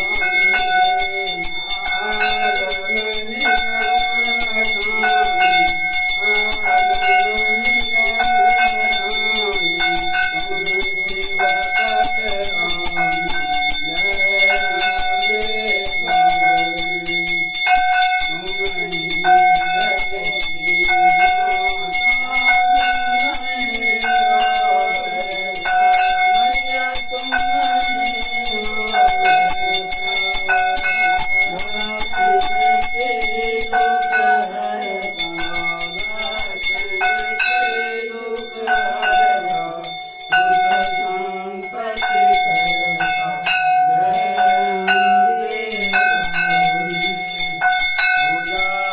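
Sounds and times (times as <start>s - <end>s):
hand bell ringing: 0.0s - 48.9s.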